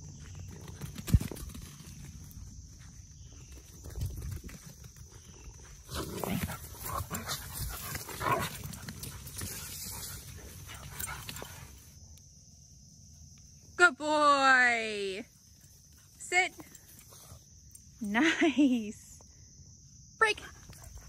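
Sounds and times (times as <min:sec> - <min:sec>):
dogs growling: 0:05.9 - 0:09.2.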